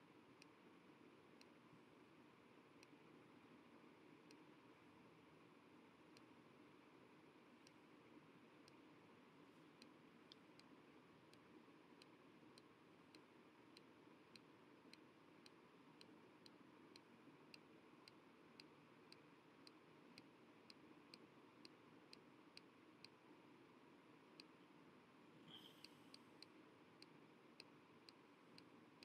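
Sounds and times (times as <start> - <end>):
low hiss: 0.0 - 29.0
mouse button clicks: 25.5 - 26.2.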